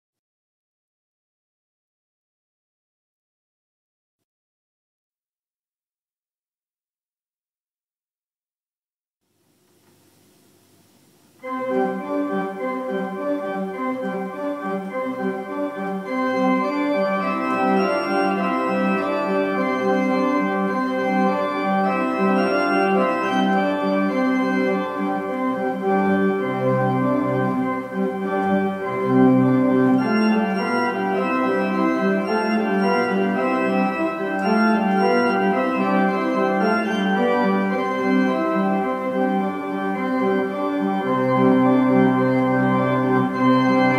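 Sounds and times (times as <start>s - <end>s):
pipe organ piece: 10.6s - 43.9s
deep organ pedal notes: 11.4s - 43.9s.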